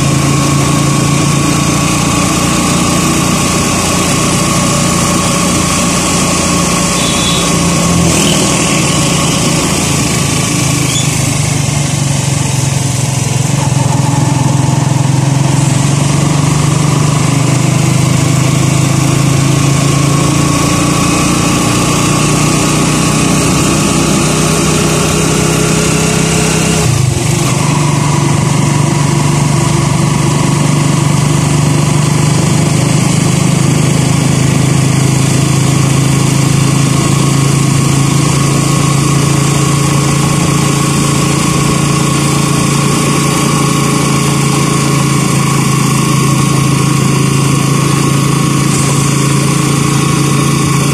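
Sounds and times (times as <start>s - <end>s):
small motorcycle engine running: 0.0s - 50.9s
tyres hissing on wet road: 39.1s - 50.9s.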